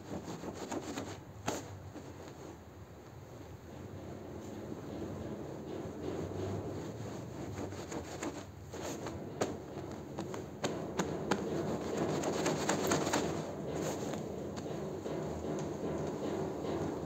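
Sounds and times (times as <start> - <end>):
broom scrubbing wet rug: 0.0 - 2.6, 5.8 - 14.0.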